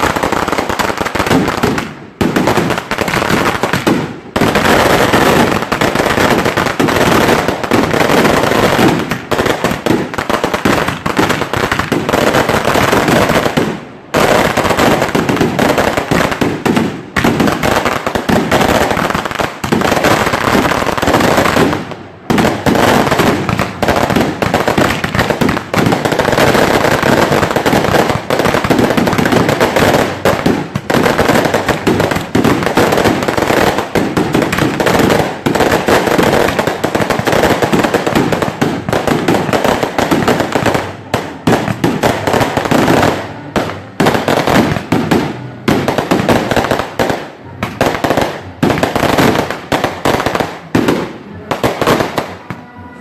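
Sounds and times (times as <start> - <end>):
firecrackers banging: 0.0 - 53.0.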